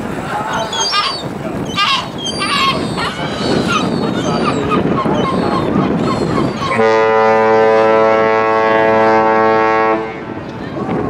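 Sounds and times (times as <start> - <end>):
people talking: 0.0 - 7.4, 10.0 - 11.0
ship's horn blast: 5.9 - 10.5.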